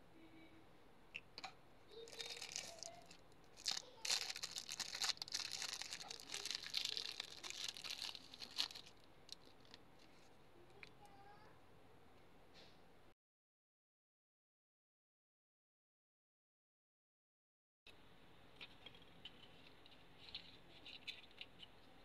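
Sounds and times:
plastic wrapping crinkling: 1.9s - 10.3s.

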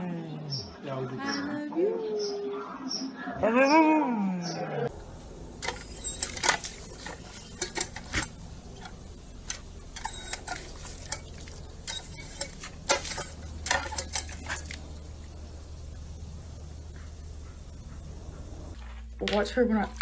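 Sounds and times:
dog lapping water: 10.0s - 14.9s.

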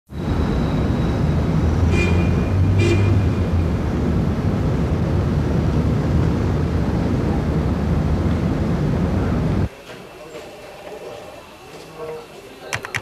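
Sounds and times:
road traffic rumble: 0.1s - 9.7s.

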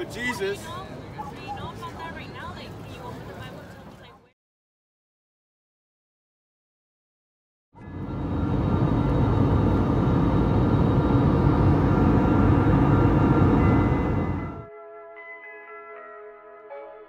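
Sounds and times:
jet engine cabin rush: 7.8s - 14.6s
faint whining tones: 7.8s - 14.7s.

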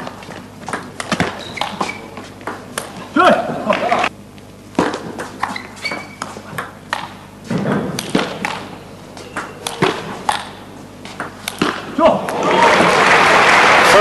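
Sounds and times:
table tennis ball clicking: 8.0s - 8.7s.

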